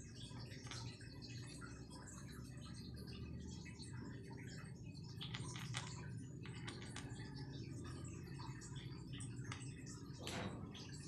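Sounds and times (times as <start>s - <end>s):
kitten crunching dry kibble: 5.2s - 7.0s.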